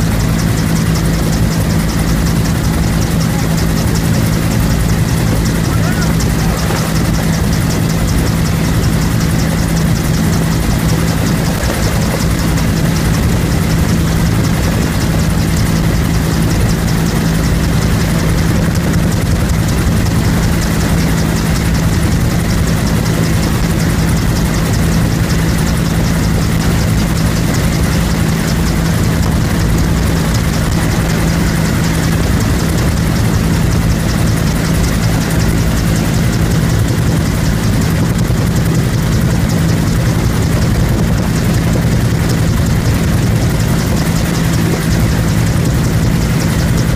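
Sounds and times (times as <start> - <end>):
helicopter engine and rotor drone: 0.0 - 46.9.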